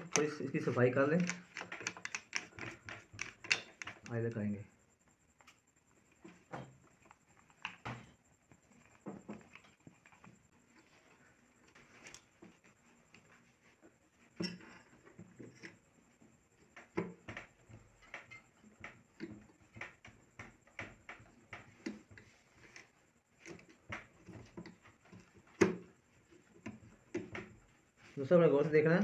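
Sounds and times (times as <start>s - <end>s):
metal clicks and taps: 1.0s - 4.2s.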